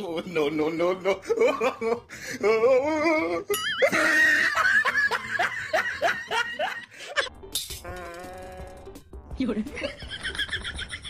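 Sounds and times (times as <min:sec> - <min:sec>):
music: 0:05.0 - 0:11.0
comic laughter sound effect: 0:09.8 - 0:11.0.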